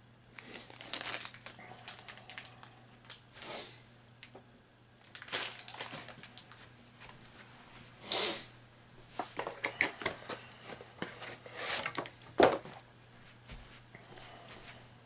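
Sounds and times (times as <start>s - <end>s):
rustling and crinkling: 0.4s - 3.5s, 5.0s - 8.0s, 9.0s - 13.9s.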